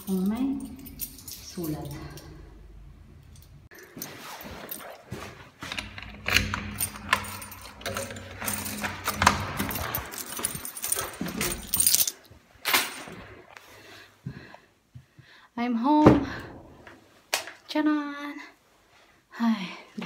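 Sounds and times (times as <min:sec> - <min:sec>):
keys jangling: 0:00.0 - 0:13.2.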